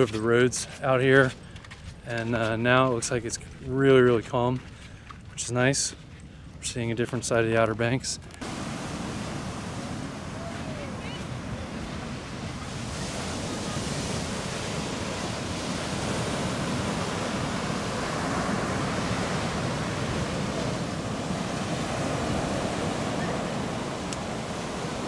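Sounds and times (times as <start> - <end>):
waves breaking on beach: 8.4 - 25.0
wind buffeting microphone: 8.4 - 25.0.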